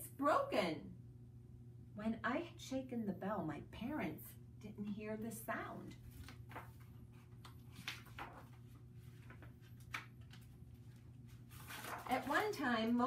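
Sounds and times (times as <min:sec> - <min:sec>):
paper pages rustling: 0:06.0 - 0:13.0.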